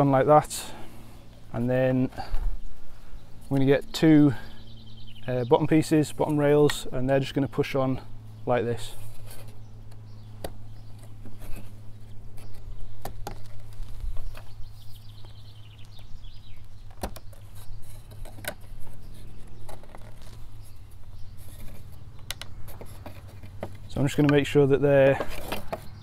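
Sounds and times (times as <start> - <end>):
steady low hum: 0.0 - 26.0
wooden clicks and knocks: 21.6 - 26.0.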